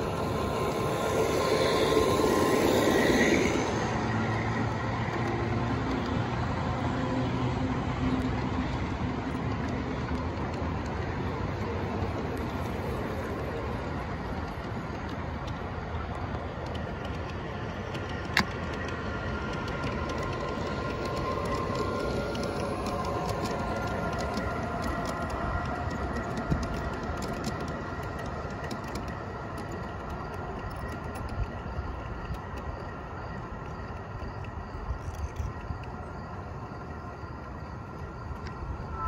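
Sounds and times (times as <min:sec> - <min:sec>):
model train wheels rumbling on rail: 0:00.0 - 0:39.0
high steady whine: 0:36.2 - 0:39.0.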